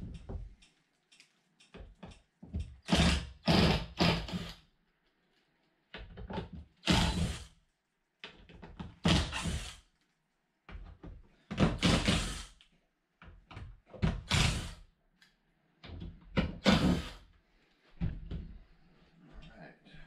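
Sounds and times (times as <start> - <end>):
cordless drill running: 2.9 - 4.5, 6.8 - 7.5, 9.1 - 9.8, 11.8 - 12.4.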